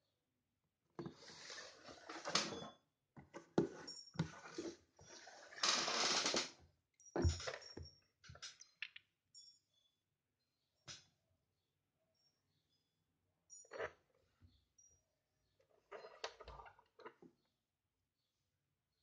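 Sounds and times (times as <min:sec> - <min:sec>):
cardboard box scraping on table: 0:01.0 - 0:02.3.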